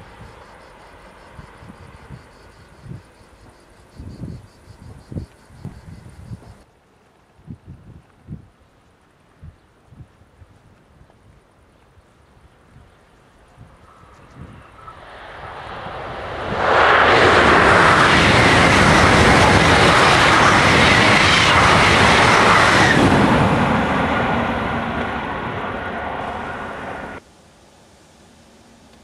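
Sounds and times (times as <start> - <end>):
high-speed train passing: 0.0 - 6.6, 13.7 - 27.2.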